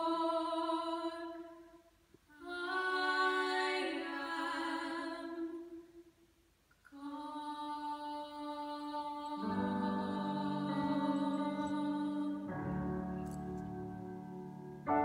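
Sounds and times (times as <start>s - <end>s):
two women singing in harmony: 0.0s - 1.6s, 2.3s - 5.9s, 7.0s - 13.2s
faint piano: 8.5s - 15.0s.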